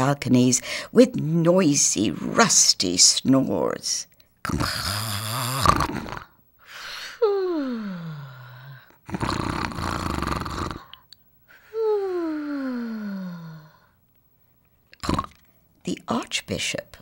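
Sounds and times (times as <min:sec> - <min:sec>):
cartoon snoring: 0:04.4 - 0:06.4, 0:07.3 - 0:11.0, 0:11.8 - 0:13.8, 0:15.0 - 0:15.4.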